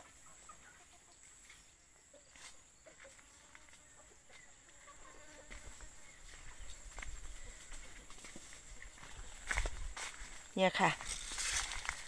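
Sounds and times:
faint poultry calls: 0:00.0 - 0:08.2
faint outdoor ambience: 0:00.0 - 0:12.0.

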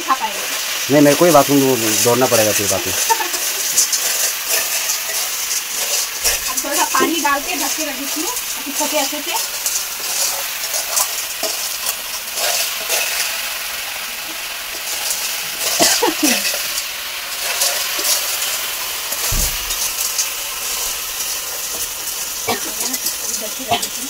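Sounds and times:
snails sizzling in oil: 0:00.0 - 0:24.0
stirring scrapes and clicks: 0:02.9 - 0:13.4, 0:17.4 - 0:18.5, 0:19.8 - 0:24.0
low thud: 0:19.3 - 0:19.9.

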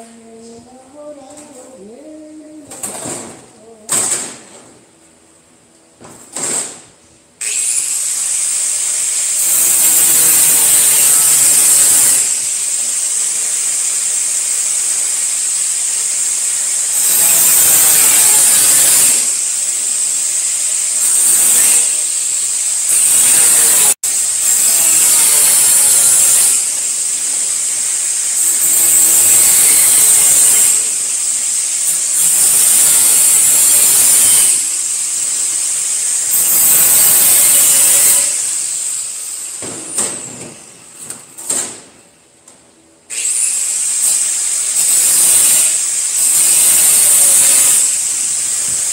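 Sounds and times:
angle grinder whining: 0:07.4 - 0:39.6.

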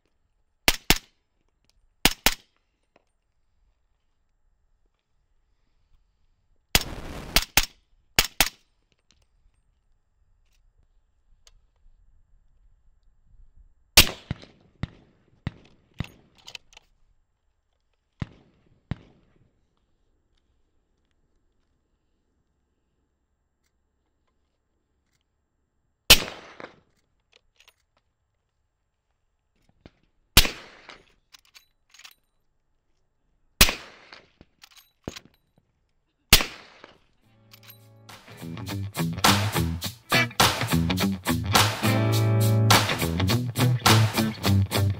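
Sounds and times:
gunfire cracks: 0:06.8 - 0:08.5, 0:26.1 - 0:26.8, 0:33.6 - 0:34.3, 0:36.3 - 0:37.0.

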